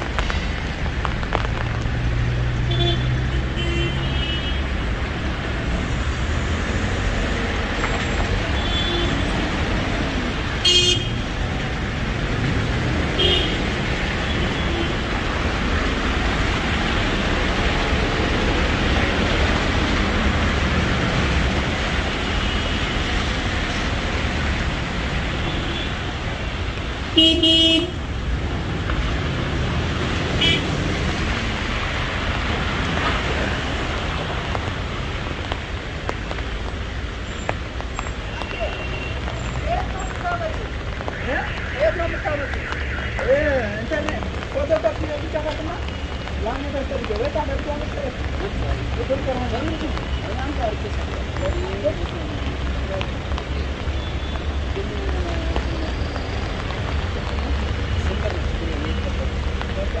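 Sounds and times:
passing cars: 0:00.0 - 1:00.0
car horns tooting: 0:10.6 - 0:11.2, 0:27.2 - 0:28.0, 0:30.4 - 0:30.7.

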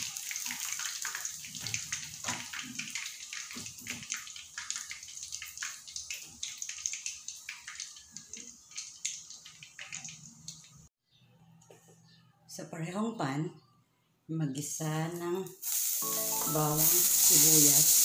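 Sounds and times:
chicken deep-frying in hot oil: 0:00.0 - 0:10.9, 0:15.2 - 0:18.0.

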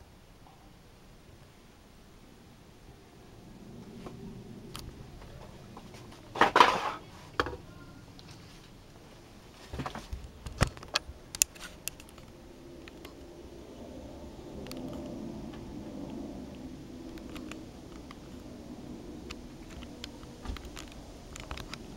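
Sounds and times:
faint background noise: 0:00.0 - 0:21.9
sharp clicks and knocks: 0:09.8 - 0:13.3.

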